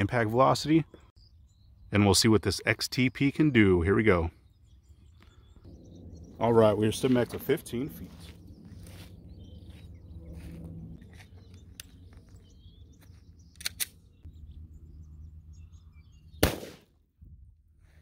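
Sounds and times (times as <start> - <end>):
faint bird chirps: 0.8 - 3.5, 4.2 - 16.5
small clicks: 13.5 - 14.0
pistol shot with echo: 16.4 - 16.9.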